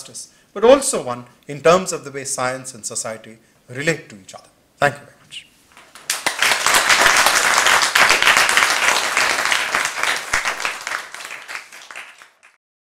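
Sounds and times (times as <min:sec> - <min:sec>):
audience applauding: 0:05.8 - 0:12.6.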